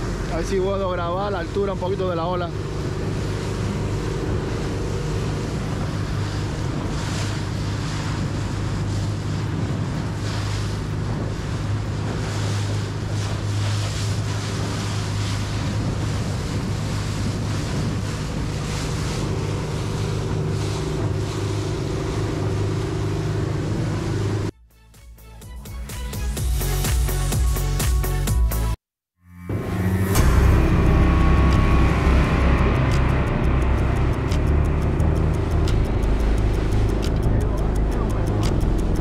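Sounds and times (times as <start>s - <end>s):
water splashing against hull: 0.0s - 24.5s, 29.5s - 39.0s
wind on microphone: 0.0s - 24.5s
boat engine running: 0.0s - 24.7s, 29.4s - 39.0s.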